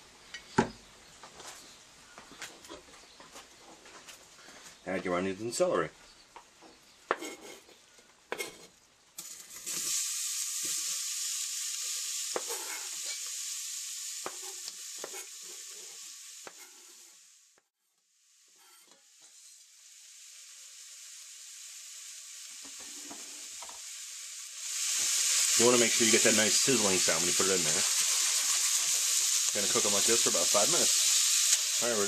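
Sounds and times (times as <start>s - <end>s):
vegetables sizzling in hot oil: 6.8s - 32.0s
knife scraping cutting board: 7.1s - 7.7s, 8.3s - 8.7s, 12.4s - 12.9s, 14.3s - 17.1s.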